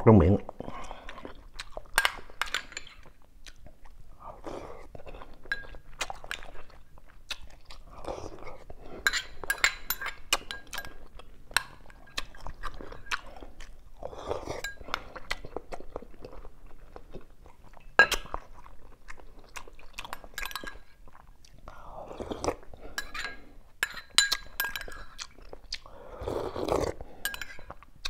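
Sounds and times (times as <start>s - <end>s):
person chewing: 0.5s - 28.0s
metal spoon clinking on bowl: 5.5s - 5.8s, 9.0s - 11.0s, 20.1s - 20.9s, 23.0s - 25.2s, 27.2s - 27.8s.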